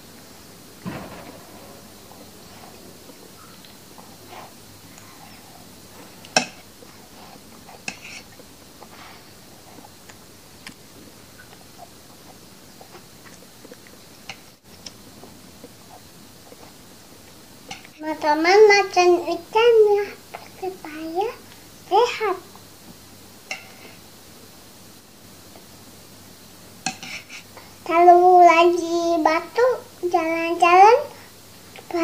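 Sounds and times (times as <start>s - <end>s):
low hiss: 0.0s - 32.0s
child chewing: 2.1s - 14.0s.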